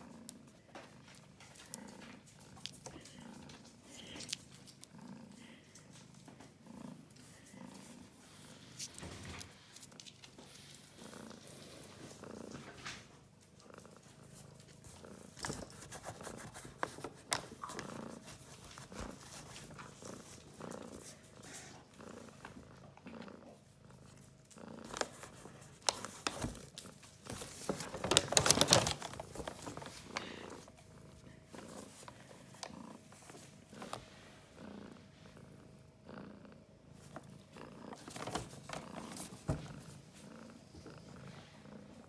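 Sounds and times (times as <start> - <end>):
cat purring: 0.0 - 42.0
paper bag rustling: 24.9 - 30.7.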